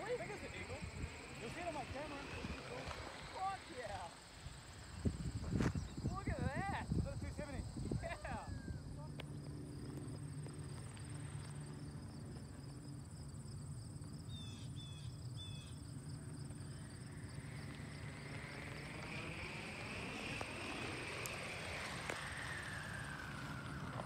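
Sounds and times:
insects chirring: 0.0 - 24.0
rushing sound rising in pitch: 17.4 - 24.0.

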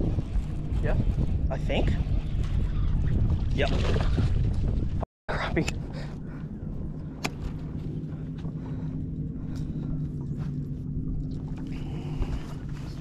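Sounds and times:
wind noise: 0.0 - 13.0
boat motor humming: 5.4 - 13.0
water noise: 6.0 - 13.0.

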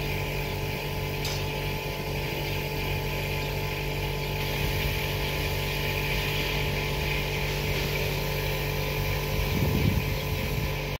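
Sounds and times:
engine running: 0.0 - 11.0
paint spray gun hissing: 0.0 - 11.0.

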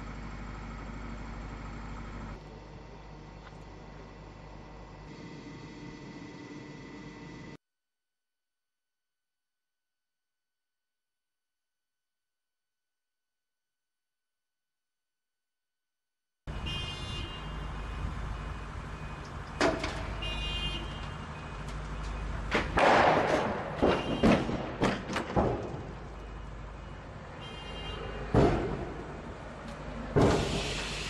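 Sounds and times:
vehicle engine running: 0.0 - 7.6
loud metal clanks and thuds: 22.5 - 26.1, 28.3 - 29.2, 30.1 - 30.8.

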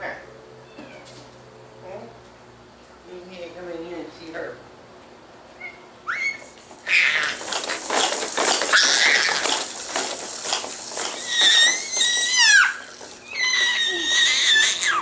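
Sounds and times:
baby squealing: 5.6 - 7.6, 8.7 - 9.6, 11.1 - 15.0
activity jumper rattling: 6.1 - 15.0.

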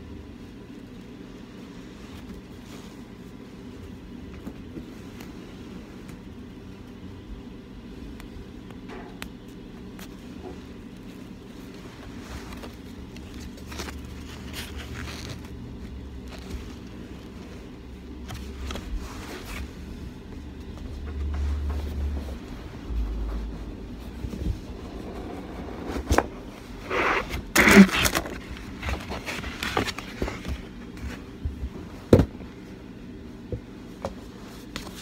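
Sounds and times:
steady low hum: 0.0 - 35.0
gift packaging handling: 10.0 - 19.9, 26.0 - 31.4.

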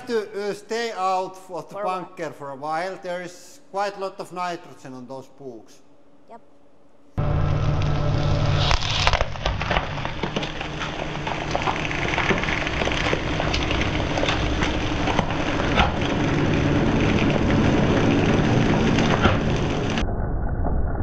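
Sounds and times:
hydraulic press humming: 7.2 - 20.0
frozen books crackling and snapping: 7.6 - 20.8.

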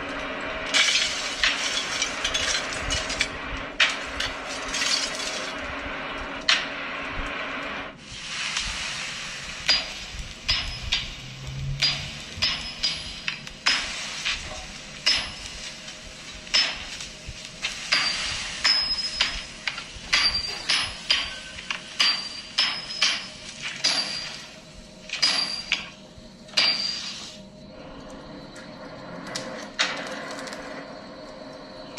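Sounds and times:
hammer striking metal on anvil: 9.6 - 14.0, 15.0 - 15.5, 16.5 - 16.9, 17.9 - 19.5, 20.1 - 24.5, 25.1 - 25.9, 26.5 - 27.1.

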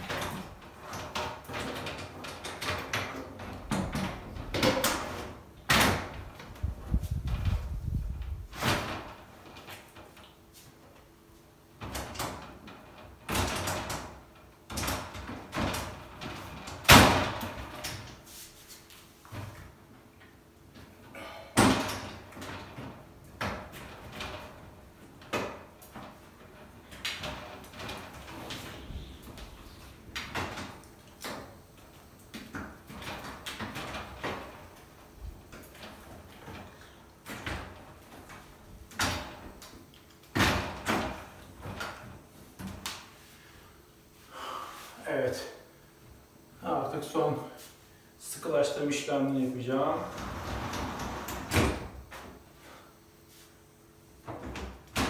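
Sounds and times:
sliding shower door knocks and rattles: 0.0 - 10.3, 11.8 - 18.3, 20.8 - 42.9, 49.8 - 52.4, 54.2 - 55.0.

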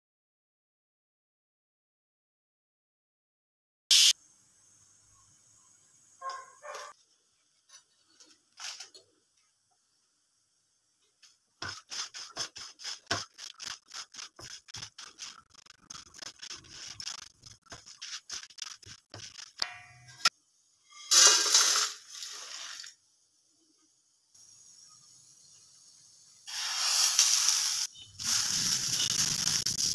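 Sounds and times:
spatula scraping spices in pan: 11.6 - 20.3.

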